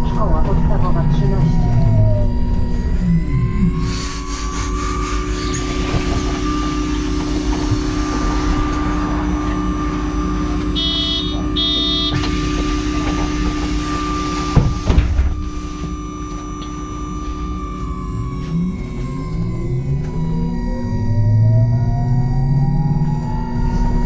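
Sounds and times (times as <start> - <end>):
bus engine humming: 0.0 - 24.0
short beeps: 8.0 - 12.3
sharp thump: 14.5 - 15.5.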